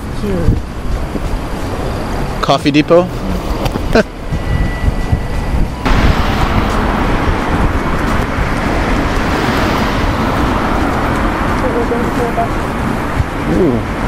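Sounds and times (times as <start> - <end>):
road noise rumble: 0.0 - 14.0
car passing: 5.8 - 14.0.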